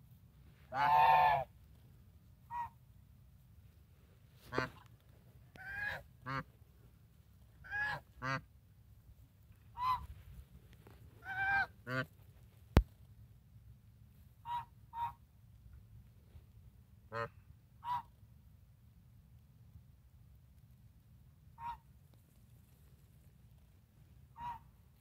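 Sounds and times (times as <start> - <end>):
geese honking: 0.7 - 1.5, 24.4 - 24.6.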